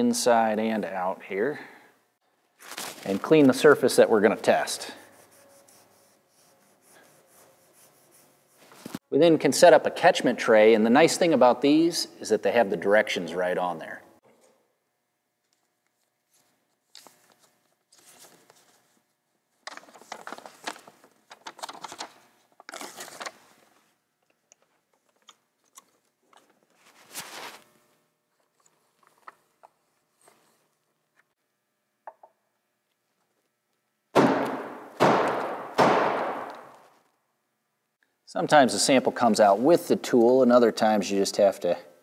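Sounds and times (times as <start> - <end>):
paper rustling and crinkling: 2.6 - 3.5, 16.3 - 19.0, 19.6 - 23.9, 25.0 - 27.7.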